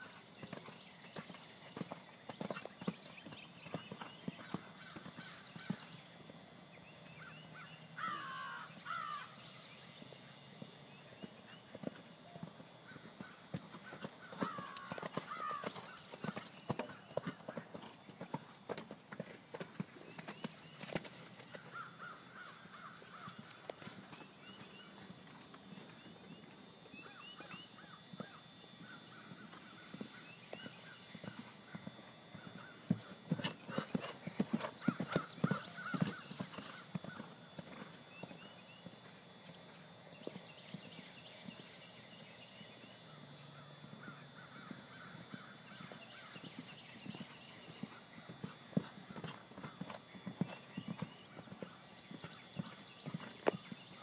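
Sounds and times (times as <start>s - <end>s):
horse hoofbeats on sand: 10.6s - 21.7s, 27.0s - 39.0s.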